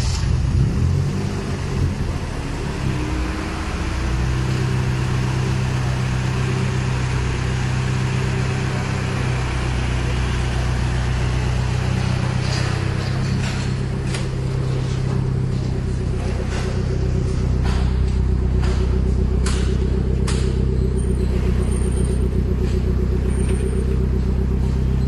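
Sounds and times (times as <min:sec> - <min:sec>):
car engine idling: 0:00.0 - 0:25.0.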